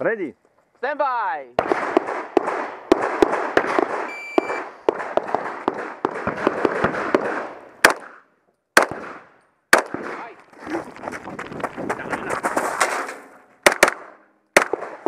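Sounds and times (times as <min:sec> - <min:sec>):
gunshots echoing: 0:01.6 - 0:10.4, 0:12.8 - 0:15.0.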